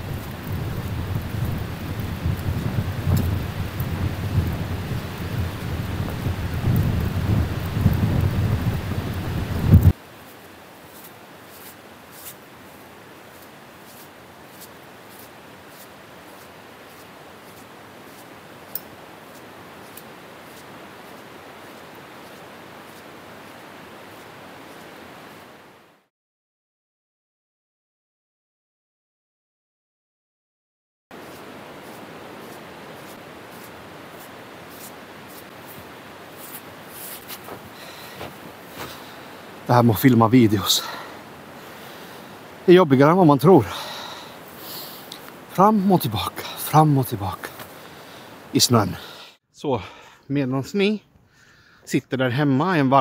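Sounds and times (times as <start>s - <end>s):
wind buffeting microphone: 0.0s - 10.0s
faint steady hiss: 0.0s - 26.1s, 31.1s - 53.0s
footsteps crunching in snow: 9.6s - 25.6s, 31.2s - 39.8s
light ticks: 45.1s - 45.4s.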